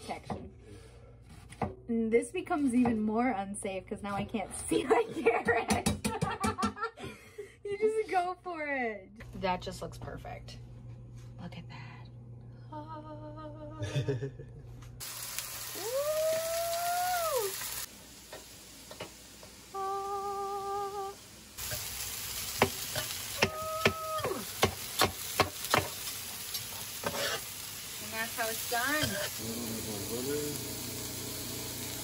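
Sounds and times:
food sizzling on griddle: 15.0s - 32.0s
knife tapping on griddle: 22.6s - 26.0s.

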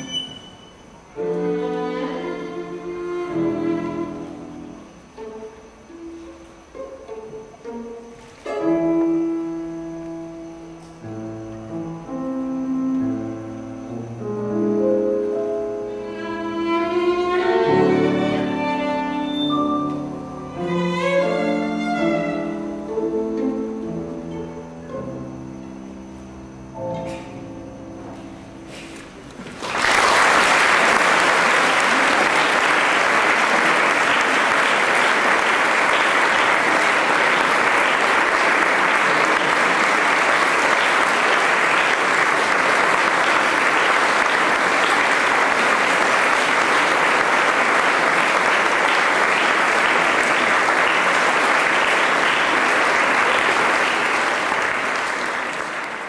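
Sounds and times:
violin and piano: 0.0s - 28.7s
audience applauding: 29.2s - 56.0s.

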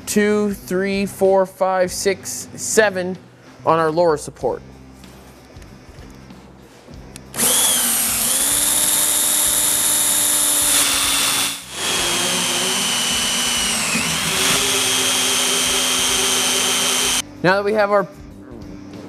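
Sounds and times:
power drill whining through metal: 7.3s - 17.2s.

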